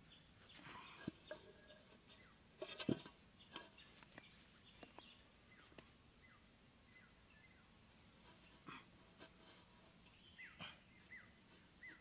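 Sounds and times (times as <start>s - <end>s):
pot set down on sand: 0.6s - 3.8s
bird chirps: 10.1s - 12.0s.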